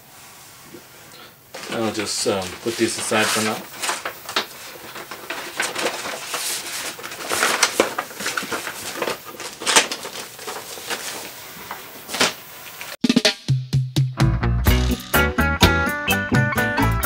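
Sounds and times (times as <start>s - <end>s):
cardboard packaging rustling: 1.5s - 13.0s
plastic wrap crinkling: 1.5s - 13.0s
music with a beat: 13.0s - 17.0s.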